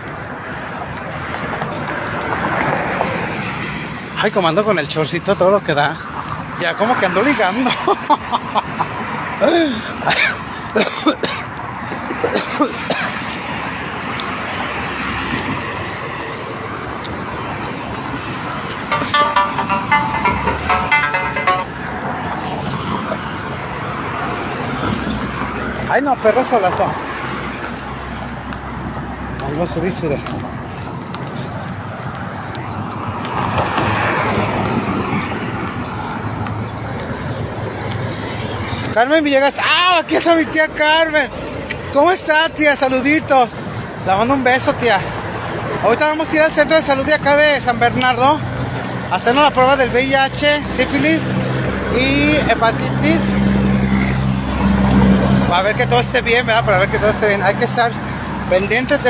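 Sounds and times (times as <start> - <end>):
rush of outdoor noise: 0.0 - 59.0
man laughing: 7.3 - 13.2.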